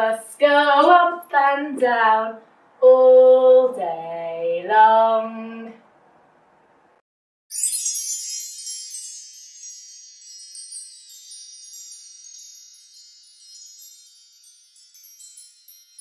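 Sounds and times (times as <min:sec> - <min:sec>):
wind chimes chiming: 0:07.5 - 0:16.0.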